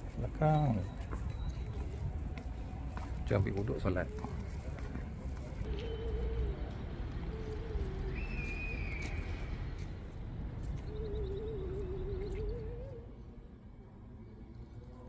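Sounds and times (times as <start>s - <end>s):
high drawn-out whistle: 8.1s - 9.4s
pigeon cooing: 10.8s - 13.2s.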